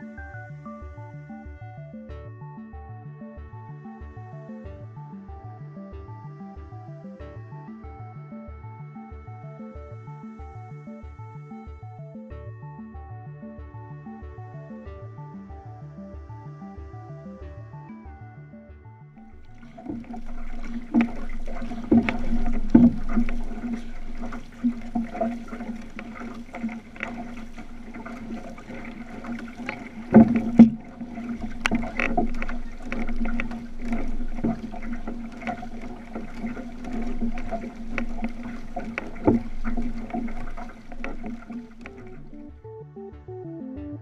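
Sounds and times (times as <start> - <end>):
water washing along hull: 19.2 - 42.5
paddles dipping in water: 19.2 - 42.6
sharp knocks on hull: 19.6 - 42.4.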